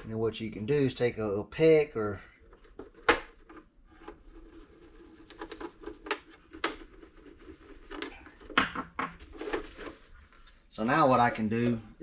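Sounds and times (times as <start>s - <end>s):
plastic panels clicking and knocking: 2.5s - 4.2s, 5.2s - 7.0s, 7.9s - 9.7s.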